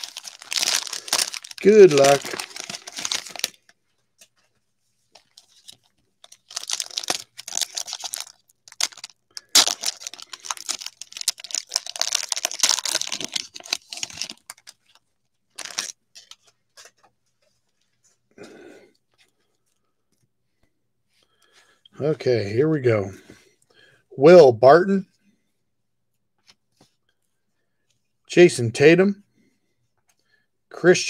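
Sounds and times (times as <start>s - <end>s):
cellophane wrapper crinkling: 0.0s - 4.3s, 5.2s - 17.0s.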